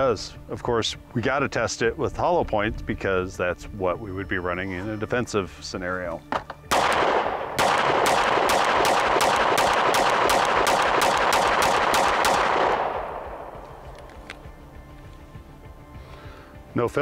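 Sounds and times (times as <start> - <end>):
rapid pistol shots: 6.7 - 13.8
gunshot echo: 6.7 - 13.9.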